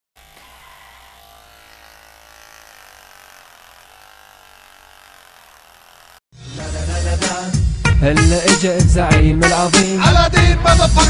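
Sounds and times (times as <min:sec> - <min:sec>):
beard trimmer buzzing: 0:00.2 - 0:06.3.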